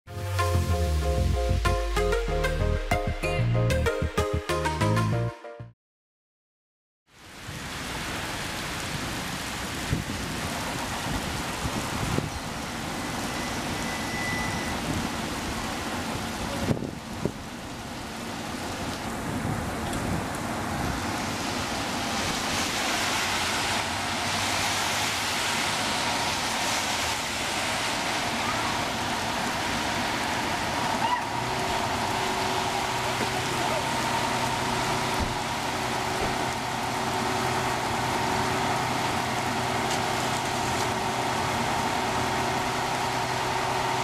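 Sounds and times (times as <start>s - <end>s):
rain hiss: 7.1s - 44.0s
fire engine idling: 28.3s - 44.0s.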